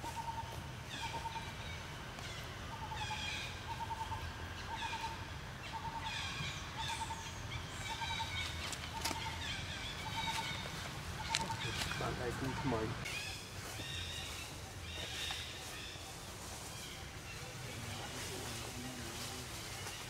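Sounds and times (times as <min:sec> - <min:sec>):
birds high falling chirps: 0:00.0 - 0:20.0.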